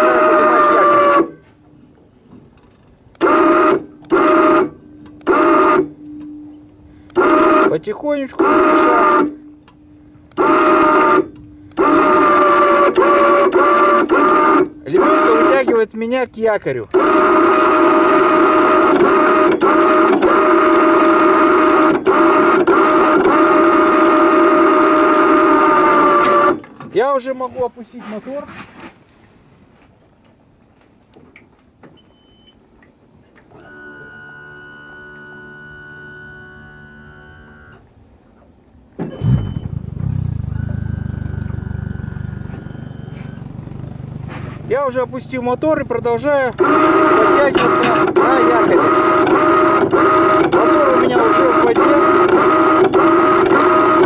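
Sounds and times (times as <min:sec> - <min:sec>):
electric winch motor whining: 0:00.0 - 0:01.4, 0:03.1 - 0:06.0, 0:07.0 - 0:15.8, 0:16.8 - 0:26.7, 0:33.5 - 0:37.9, 0:39.0 - 0:44.4, 0:45.6 - 0:54.0.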